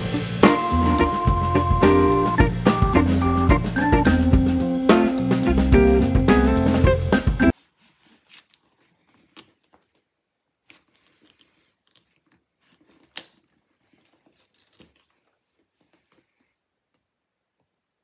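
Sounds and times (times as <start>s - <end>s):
background music: 0.0s - 7.5s.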